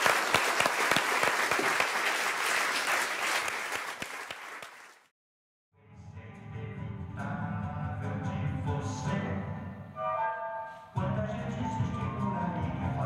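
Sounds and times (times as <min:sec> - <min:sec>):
audience applauding: 0:00.0 - 0:05.1.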